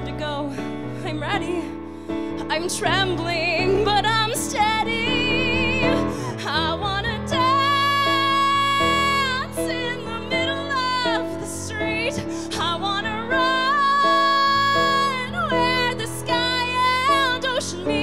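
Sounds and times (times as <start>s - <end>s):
piano accompaniment: 0.0s - 18.0s
woman singing with vibrato: 2.5s - 18.0s.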